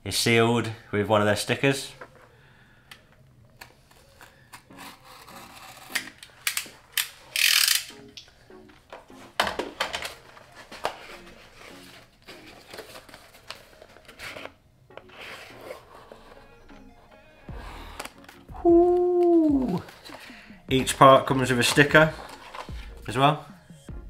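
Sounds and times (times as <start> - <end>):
cardboard tearing rip: 4.7 - 6.3.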